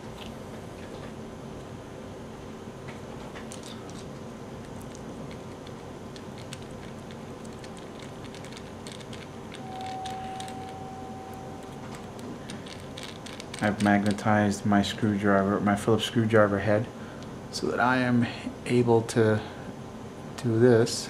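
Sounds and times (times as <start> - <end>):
steady hum: 0.0 - 21.0
steady high tone: 9.5 - 12.8.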